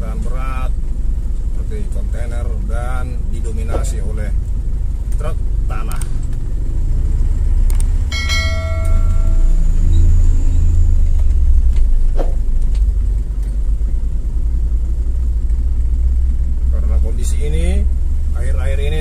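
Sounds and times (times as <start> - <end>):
ringing metallic tone: 8.0 - 10.8.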